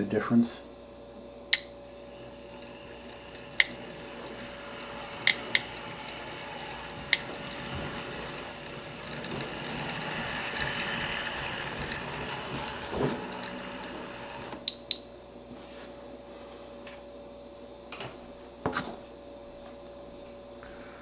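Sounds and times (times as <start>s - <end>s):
model train motors whirring: 1.9s - 14.7s
wheels clicking over rails: 2.1s - 14.7s.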